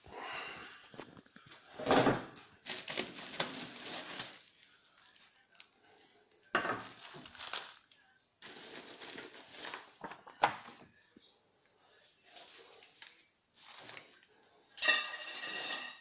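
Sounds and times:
plastic and cardboard rustling: 0:00.9 - 0:05.7, 0:06.7 - 0:10.9, 0:12.3 - 0:14.2.

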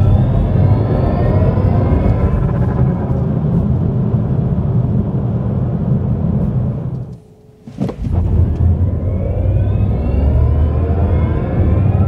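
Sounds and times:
tyre and road rumble: 0:07.6 - 0:08.9.

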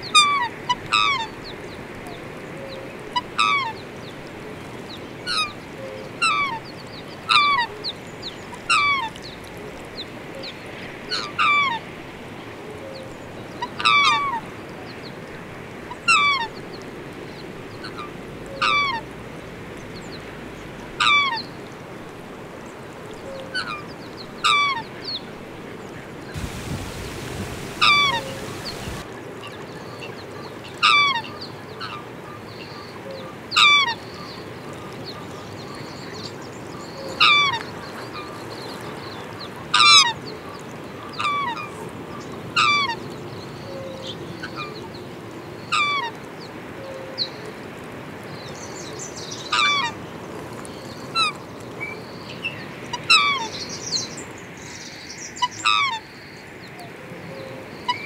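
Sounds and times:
background hiss: 0:26.3 - 0:29.1
swans honking: 0:26.4 - 0:29.1.

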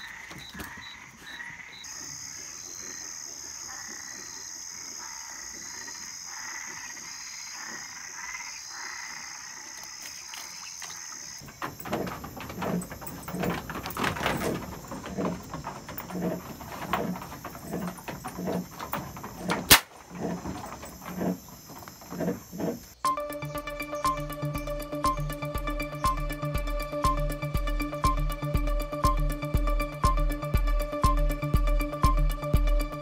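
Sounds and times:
frogs croaking: 0:00.0 - 0:27.2
irregular knocks and clicks: 0:10.4 - 0:23.0.

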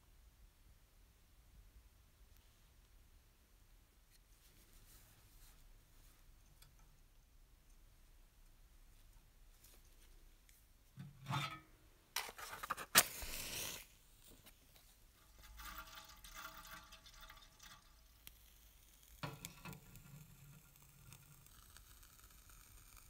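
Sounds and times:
handling toy steam engine: 0:11.0 - 0:17.1.

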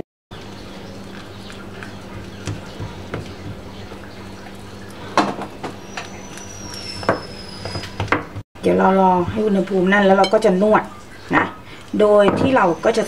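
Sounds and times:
steady low hum: 0:00.3 - 0:07.7.

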